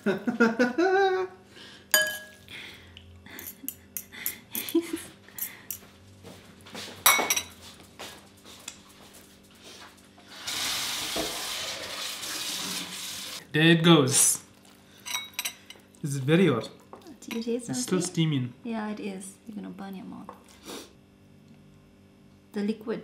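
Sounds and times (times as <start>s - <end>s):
metal utensils clinking on glass bowl: 2.0s - 2.4s, 15.0s - 15.8s.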